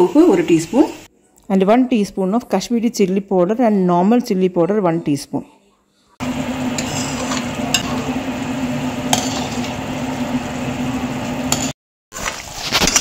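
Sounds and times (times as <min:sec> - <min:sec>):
low hum: 0:06.2 - 0:11.7
chutney sizzling and bubbling: 0:06.2 - 0:13.0.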